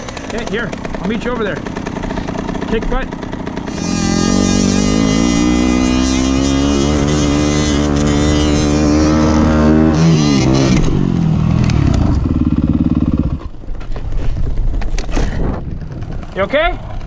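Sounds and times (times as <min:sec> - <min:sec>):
dirt bike engine revving: 0:00.0 - 0:13.5.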